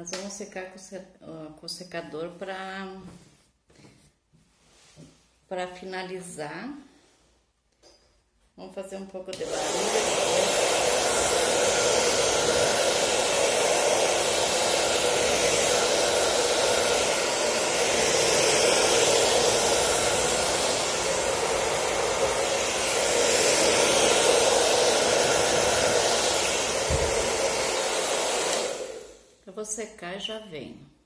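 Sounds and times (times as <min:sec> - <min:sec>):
hair dryer blowing air: 0:09.2 - 0:29.4.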